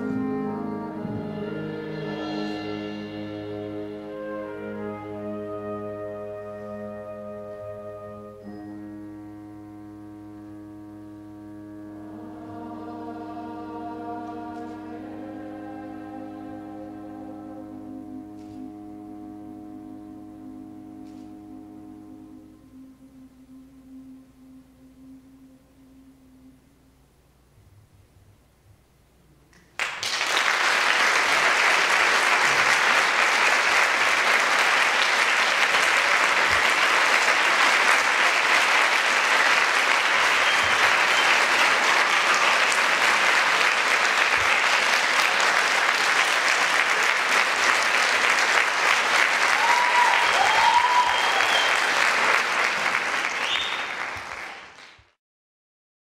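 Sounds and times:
audience applause: 0:29.8 - 0:55.1
audience cheers: 0:30.3 - 0:54.6.

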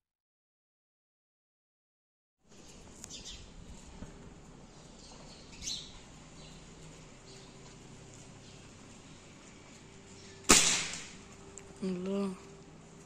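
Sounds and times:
faint street ambience: 0:02.4 - 0:13.0
small birds chirping: 0:02.5 - 0:10.7
low steady hum: 0:02.5 - 0:13.0.

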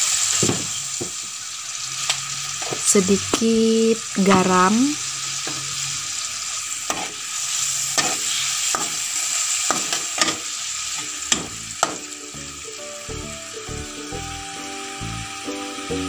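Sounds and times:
sauce sizzling in a wok: 0:00.0 - 0:16.0
metal spatula scraping a wok: 0:05.3 - 0:11.9.

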